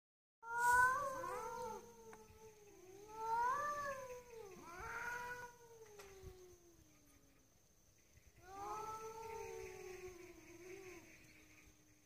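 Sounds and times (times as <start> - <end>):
cats caterwauling: 0.4 - 7.1, 8.4 - 11.0.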